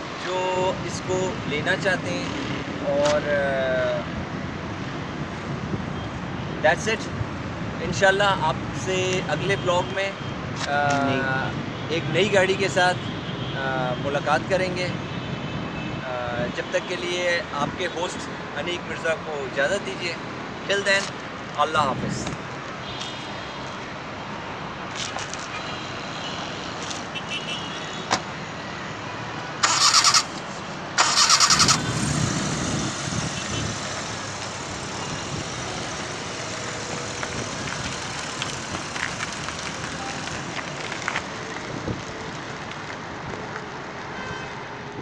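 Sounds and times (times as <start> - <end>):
car engine cranking and starting: 29.6 - 30.4, 31.0 - 32.5.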